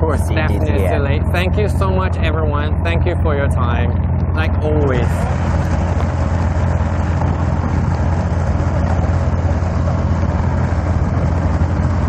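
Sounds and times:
boat engine humming: 0:00.0 - 0:12.0
wind noise on microphone: 0:00.0 - 0:12.0.

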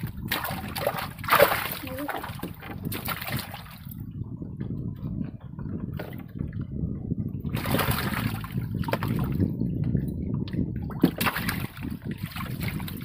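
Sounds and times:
water splashing around boat: 0:00.0 - 0:04.0, 0:07.4 - 0:09.5, 0:10.4 - 0:13.0
low rumble: 0:00.0 - 0:13.0.

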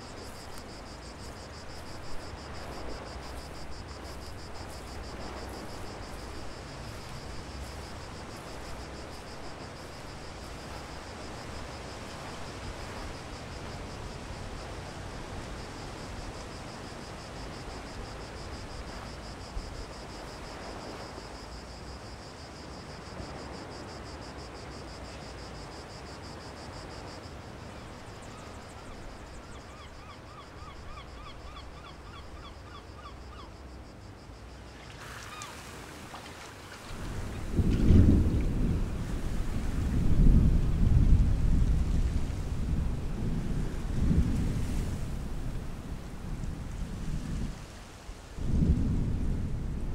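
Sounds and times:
insect trilling: 0:29.3 - 0:33.8.

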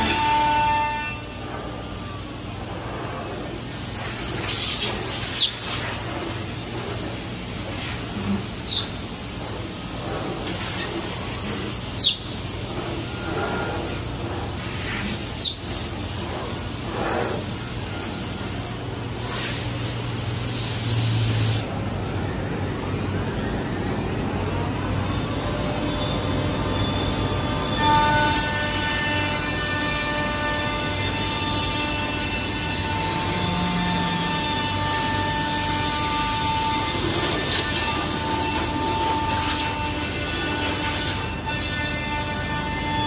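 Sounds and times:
machine milling wood: 0:30.1 - 0:41.9.

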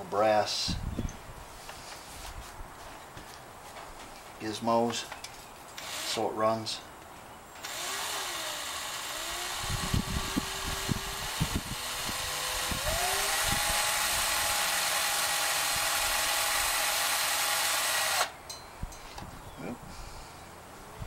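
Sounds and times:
cordless drill whining: 0:07.6 - 0:18.4.

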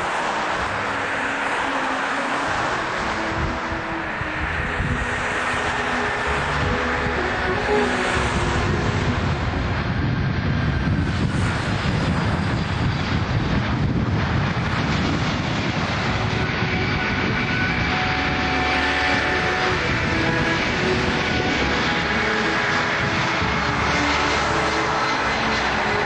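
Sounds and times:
jet engine noise: 0:00.0 - 0:26.0.

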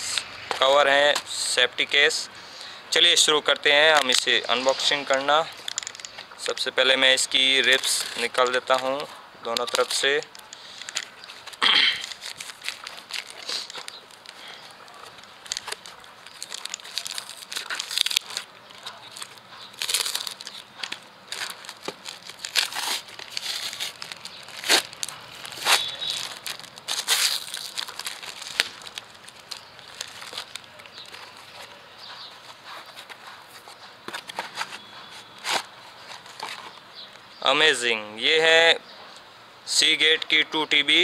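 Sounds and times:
packaging crinkling and rustling: 0:03.2 - 0:37.3
packaging tearing: 0:09.6 - 0:31.7.

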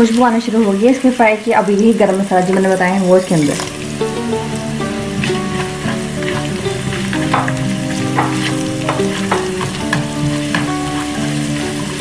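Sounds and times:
spices sizzling in hot oil: 0:00.0 - 0:12.0
spatula scraping a pan: 0:04.8 - 0:12.0.

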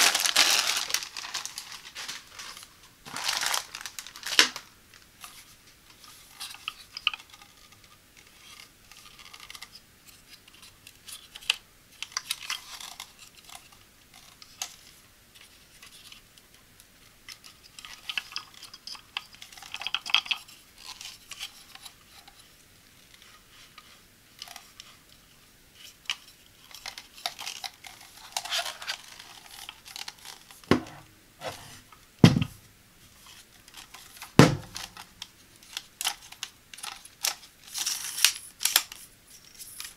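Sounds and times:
tripod legs knocking: 0:30.7 - 0:31.6, 0:32.2 - 0:32.6, 0:34.4 - 0:34.9.

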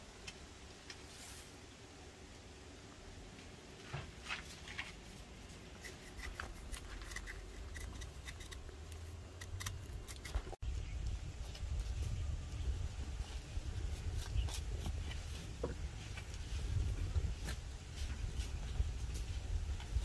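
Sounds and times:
knife scoring bark: 0:05.8 - 0:10.6.

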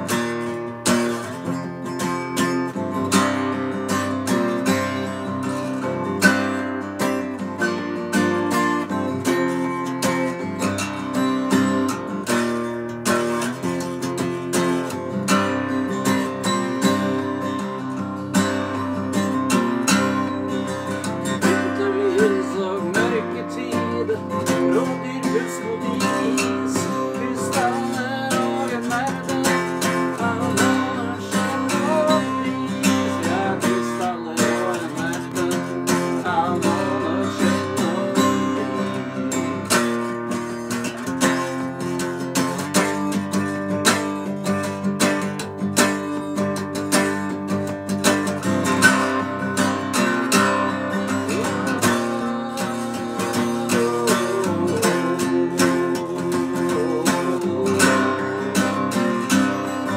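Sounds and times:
acoustic guitar strumming: 0:00.0 - 0:59.9.

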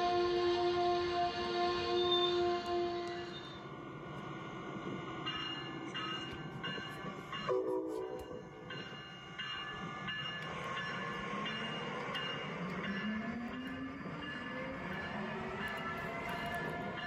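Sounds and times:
train horn: 0:00.0 - 0:03.6, 0:07.5 - 0:08.4.

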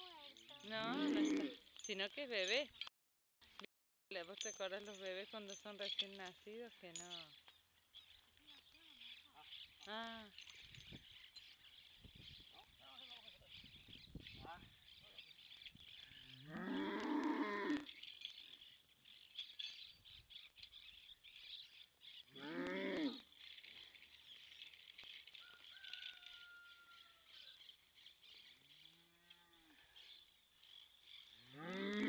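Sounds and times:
cow mooing: 0:00.8 - 0:01.6, 0:16.4 - 0:17.9, 0:22.4 - 0:23.2, 0:31.5 - 0:32.0.

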